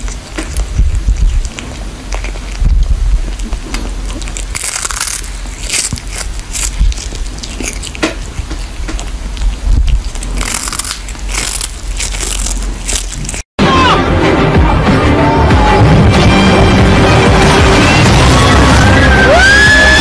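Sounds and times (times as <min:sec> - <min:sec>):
cat chewing and crunching: 0:00.0 - 0:13.5.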